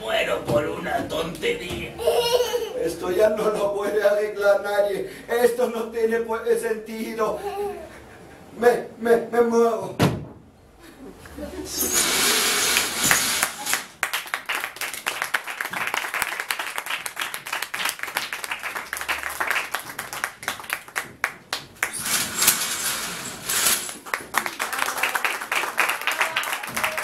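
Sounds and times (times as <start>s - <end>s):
audience applauding: 12.4s - 22.3s, 23.8s - 27.0s.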